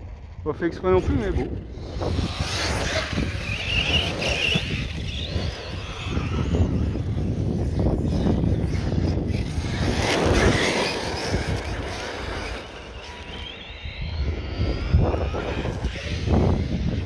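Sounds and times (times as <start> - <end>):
high electric motor whine: 0.0 - 17.0
rc car on gravel: 0.0 - 17.0.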